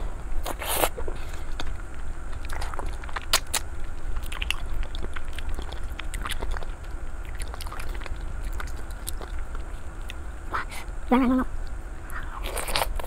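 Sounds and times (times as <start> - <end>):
wet chewing: 0.4 - 10.2
biting food: 2.3 - 10.2.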